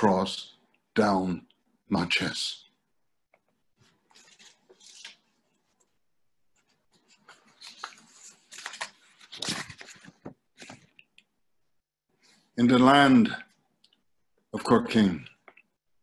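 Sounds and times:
rustling and handling noises: 3.4 - 11.3.

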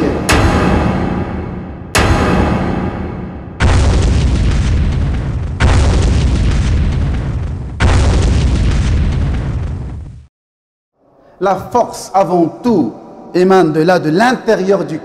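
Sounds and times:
deep explosion booms: 0.0 - 10.3.

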